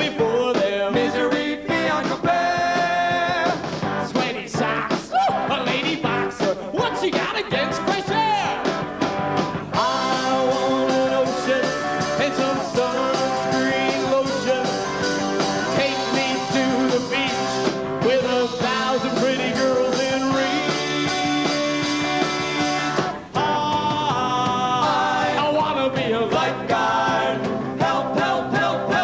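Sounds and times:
rock band playing live: 0.0 - 29.0
electric guitar: 7.6 - 25.2
person singing: 9.8 - 15.0, 15.7 - 29.0.

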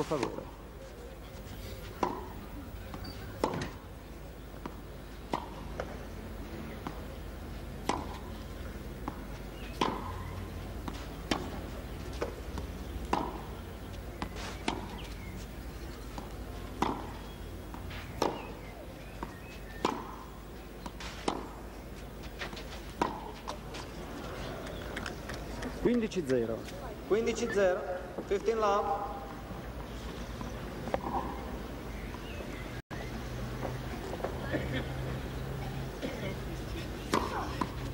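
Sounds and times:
tennis ball bouncing: 1.9 - 3.9, 4.5 - 7.2, 7.8 - 32.6, 37.0 - 37.9
tennis racket hitting ball: 2.0 - 2.3, 3.0 - 3.8, 7.8 - 8.3, 9.0 - 13.6, 16.2 - 17.2, 18.1 - 20.2, 20.9 - 21.6, 22.4 - 23.7, 37.1 - 37.9.

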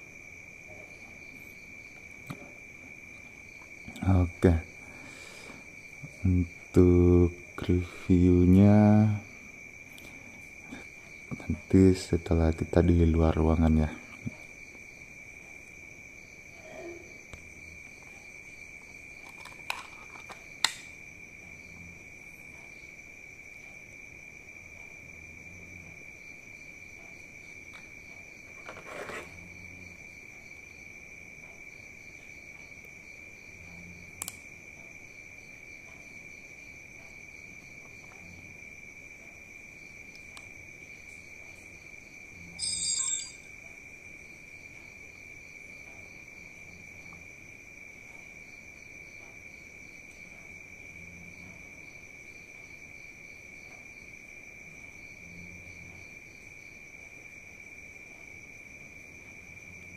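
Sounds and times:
crickets chirping: 0.0 - 59.9
brief high-pitched sound: 42.6 - 43.4.

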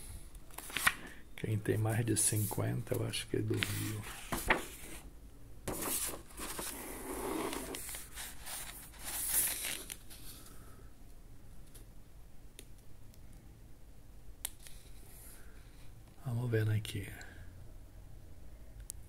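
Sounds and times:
book pages turning and rustling: 0.5 - 1.1, 3.5 - 5.0, 5.7 - 10.4.

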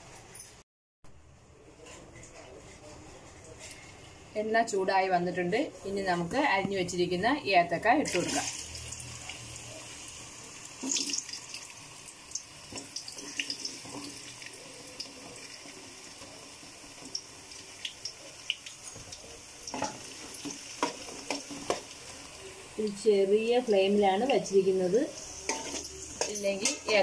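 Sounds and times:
food sizzling in hot oil: 5.8 - 27.0.

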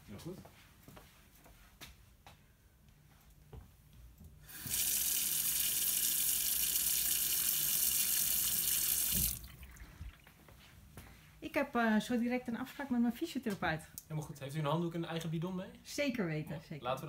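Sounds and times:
water running into a sink: 4.5 - 10.2
tap turned on: 4.6 - 4.9, 9.0 - 9.4.

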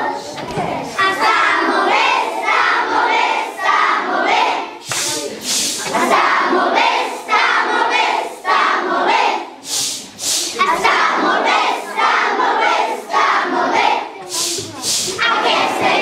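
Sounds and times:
children singing and chanting: 0.0 - 16.0
children shouting: 10.6 - 16.0.

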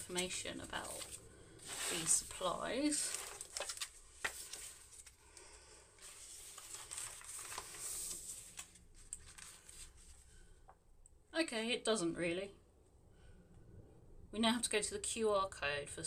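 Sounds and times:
paper pages rustling and crinkling: 0.0 - 5.2, 6.0 - 10.3.

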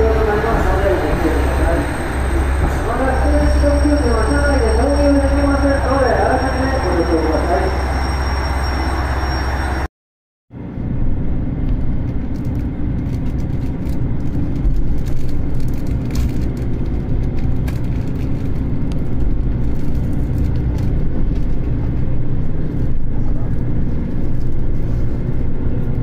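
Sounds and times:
platform noise: 0.0 - 9.9
train engine and wheel rumble: 0.0 - 9.9, 10.6 - 26.0.

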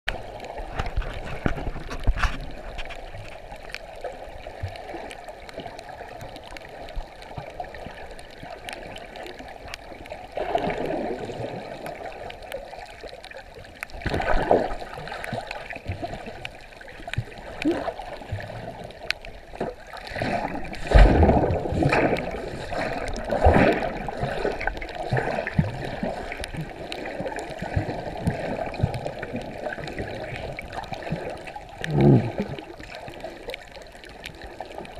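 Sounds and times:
faint clicks: 0.1 - 11.0, 11.8 - 20.9, 24.4 - 27.6
muffled underwater rushing: 0.1 - 34.9
water surges: 0.1 - 34.9.

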